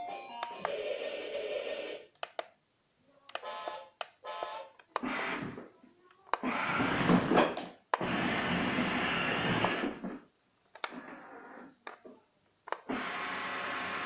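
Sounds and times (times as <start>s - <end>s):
toy speaker click: 1.6s - 2.5s, 3.3s - 5.1s
toy car electronic sound effects: 3.4s - 5.5s.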